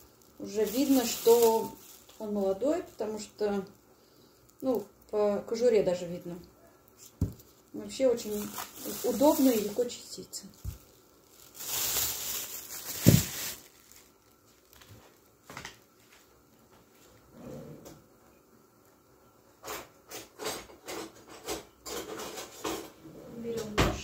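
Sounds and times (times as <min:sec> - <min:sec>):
plastic bag rustling: 0:00.0 - 0:06.3, 0:06.9 - 0:16.4.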